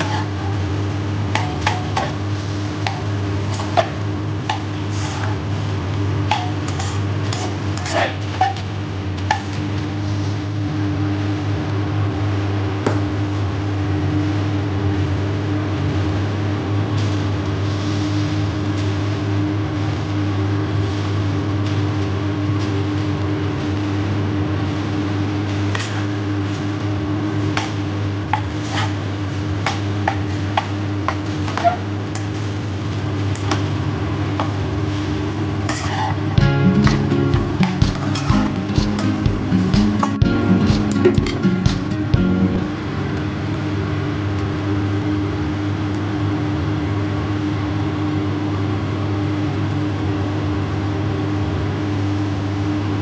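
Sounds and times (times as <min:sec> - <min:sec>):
spatula scraping rice in a wok: 0:00.0 - 0:00.4, 0:06.3 - 0:08.6, 0:28.4 - 0:29.0, 0:35.7 - 0:36.3
steady low hum: 0:00.0 - 0:53.0
low hum: 0:36.3 - 0:45.3
spatula knocking wok: 0:36.4 - 0:42.7.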